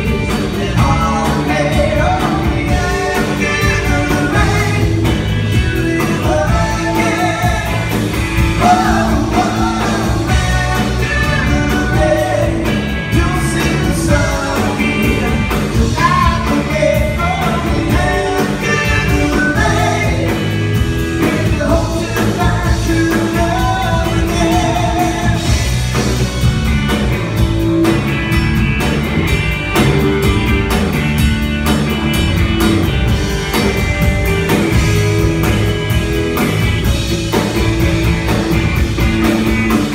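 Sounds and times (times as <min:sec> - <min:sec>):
person singing lead vocal: 0:00.0 - 0:25.8
drums: 0:00.0 - 0:39.9
electric bass: 0:00.0 - 0:39.9
electric guitar: 0:00.0 - 0:39.9.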